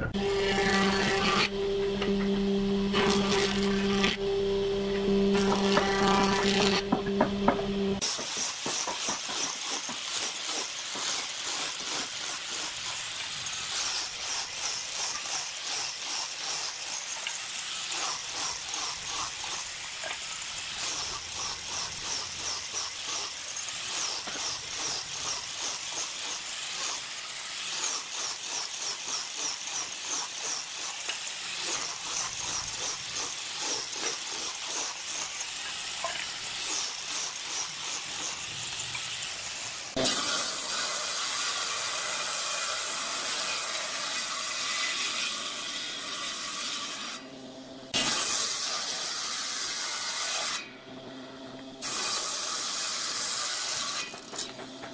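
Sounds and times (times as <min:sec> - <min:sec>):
table saw cutting wood: 0:00.0 - 0:54.9
hand sanding wooden board: 0:05.4 - 0:13.0.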